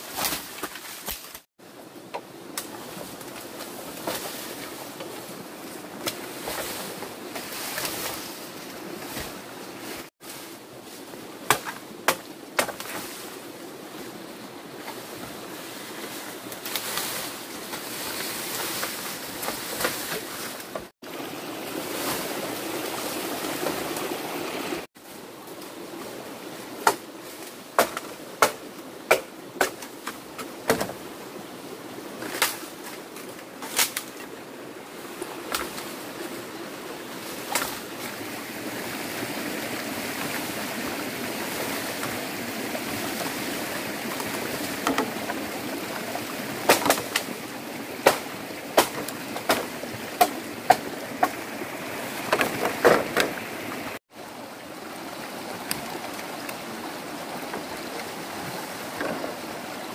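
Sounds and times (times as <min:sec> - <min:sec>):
bamboo leaves rustling: 0:00.0 - 0:59.9
blade chopping bamboo: 0:11.5 - 0:13.0, 0:27.8 - 0:30.9, 0:46.6 - 0:47.3, 0:48.0 - 0:51.4.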